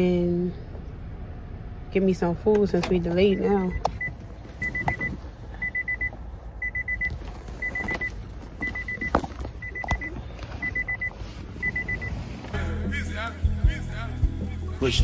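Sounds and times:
car warning chime beeping: 0:02.9 - 0:12.7
knocks and rustles of movement: 0:03.9 - 0:12.6.

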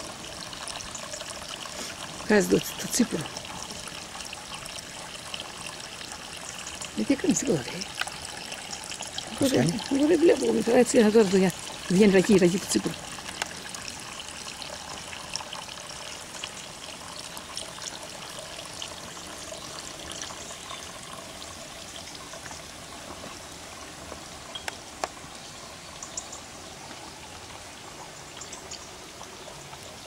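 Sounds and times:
liquid trickling into bucket: 0:00.0 - 0:30.0.

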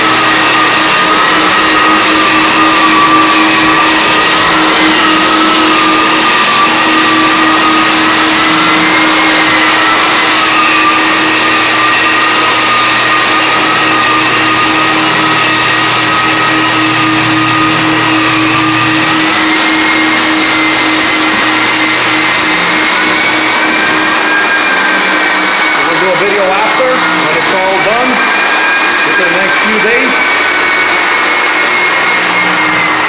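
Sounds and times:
floor sander running: 0:00.0 - 0:33.0.

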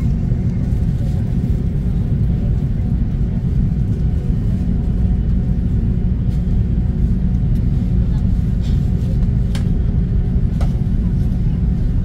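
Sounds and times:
aircraft cabin low rumble: 0:00.0 - 0:12.0.

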